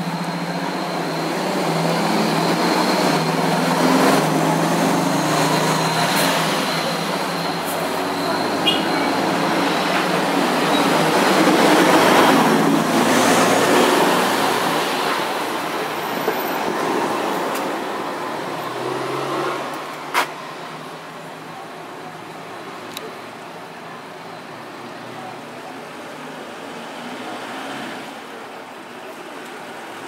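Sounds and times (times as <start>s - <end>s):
coaches and cars driving past: 0.0s - 30.0s.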